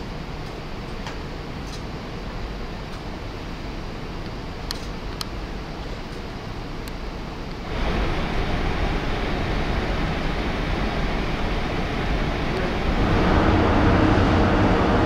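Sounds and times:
low ship engine hum: 0:00.0 - 0:15.0
ferry rumbling: 0:07.7 - 0:15.0.

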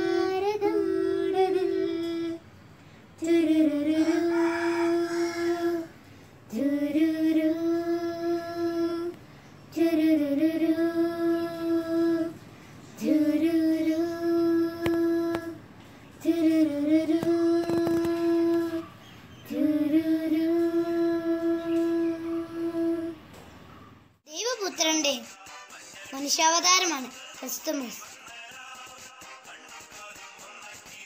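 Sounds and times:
girls singing long notes: 0:00.0 - 0:02.4, 0:03.2 - 0:12.4, 0:13.0 - 0:15.6, 0:19.5 - 0:23.3.

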